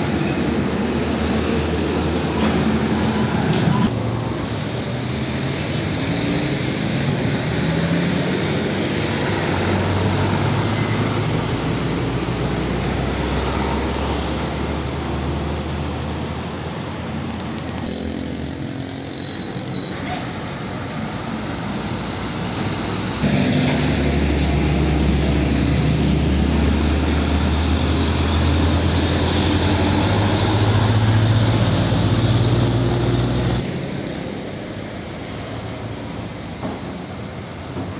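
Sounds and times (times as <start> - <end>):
diesel trucks driving past: 0.0 - 37.9
deep engine drone: 21.9 - 34.5.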